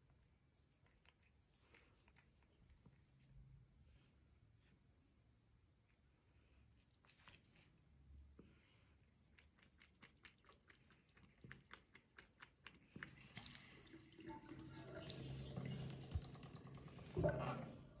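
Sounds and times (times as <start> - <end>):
cat lapping water: 6.7 - 18.0.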